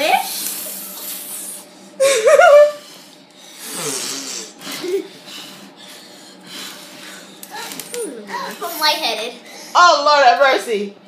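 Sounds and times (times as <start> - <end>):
person laughing: 2.0 - 2.9, 3.7 - 5.2.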